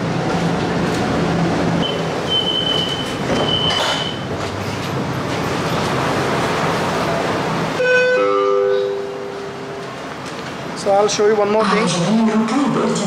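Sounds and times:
tram cabin noise: 0.0s - 13.0s
high electronic beep: 1.8s - 4.2s.

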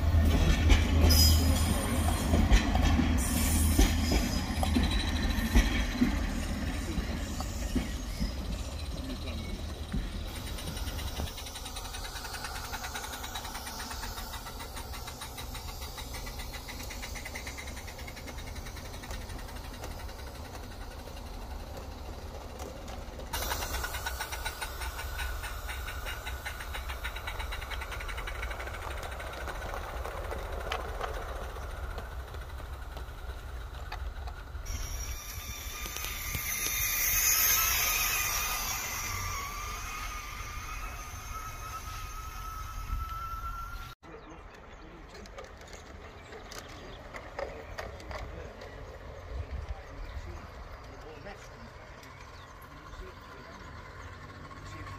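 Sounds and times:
model train wheels rattling: 0.0s - 43.6s, 44.5s - 54.9s
hiss: 1.1s - 21.6s, 23.3s - 30.0s, 34.7s - 43.6s.

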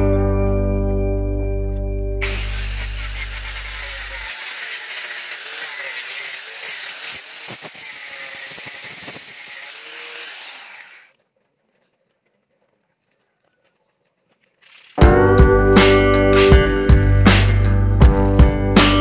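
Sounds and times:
angle grinder grating on metal: 2.2s - 11.2s, 15.8s - 19.0s.

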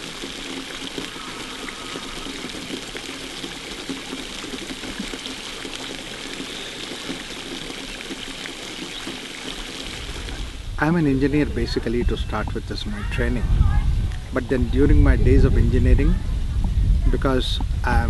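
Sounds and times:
fountain splashing: 0.0s - 13.4s.

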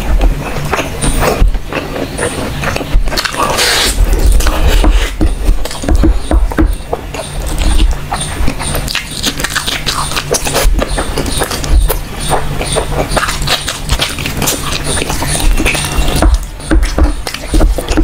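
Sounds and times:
person chewing and lip-smacking: 0.0s - 18.0s
hissy slurp: 3.2s - 4.1s.

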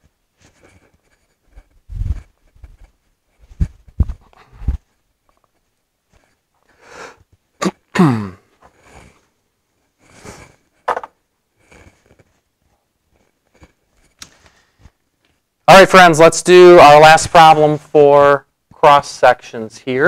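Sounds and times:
faint rustles and knocks: 0.0s - 6.7s
person sneezing: 7.6s - 9.2s.

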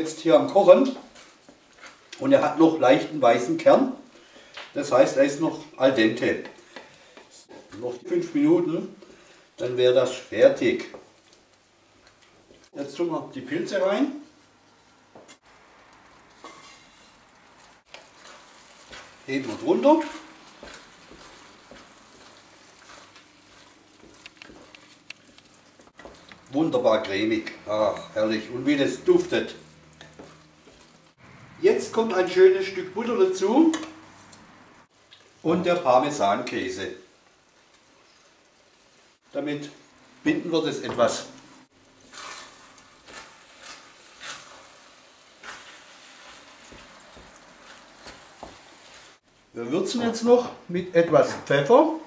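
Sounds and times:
simmering rice hiss: 0.0s - 50.7s
faint sizzle in a pan: 0.0s - 52.0s
wooden spatula ticks and scrapes: 0.4s - 2.4s, 6.1s - 8.0s, 10.4s - 12.8s, 15.1s - 31.2s, 40.8s - 49.2s.

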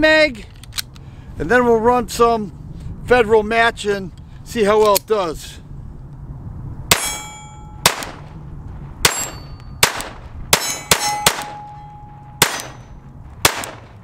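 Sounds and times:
metallic ring: 6.9s - 7.9s, 9.1s - 9.8s, 10.6s - 13.0s
pistol shots: 7.8s - 8.3s, 9.0s - 14.0s.

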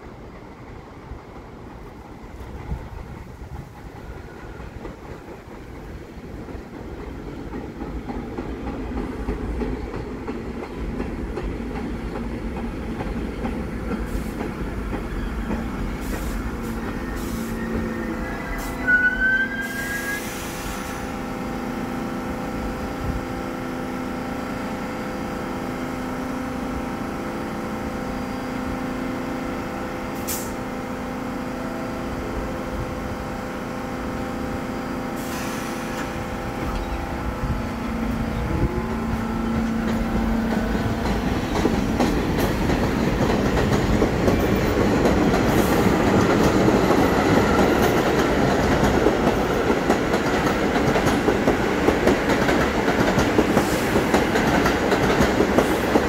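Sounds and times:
standing train humming: 0.0s - 56.0s
subway train rumble: 0.0s - 56.0s
air hiss: 14.0s - 14.6s, 15.9s - 17.8s, 19.6s - 21.2s, 30.2s - 30.6s, 35.1s - 36.4s.

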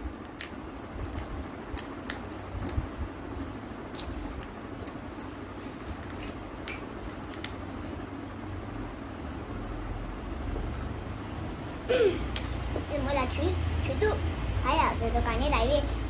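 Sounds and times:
low steady hum: 0.0s - 16.0s
crisp shell crackling: 0.2s - 2.9s, 3.8s - 7.6s.

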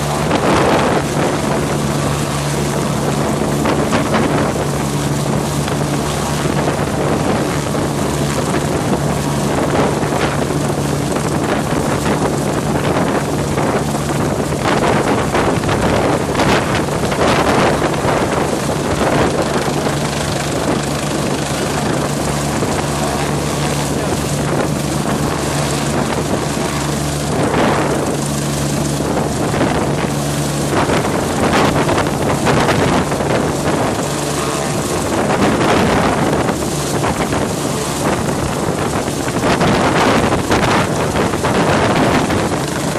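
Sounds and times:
helicopter engine and rotor hum: 0.0s - 42.9s
rotor downwash whipping water: 0.0s - 42.9s
wind buffeting microphone: 0.0s - 42.9s.

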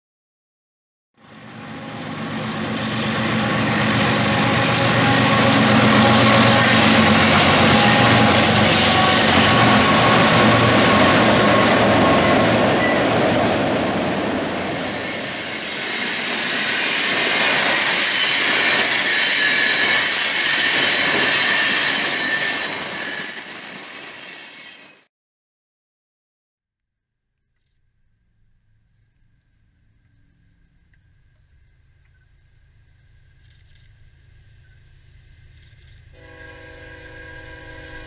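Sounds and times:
diesel locomotive engine drone: 1.2s - 25.0s, 28.4s - 38.0s
high wheel squeal: 2.9s - 13.6s, 14.4s - 25.0s.

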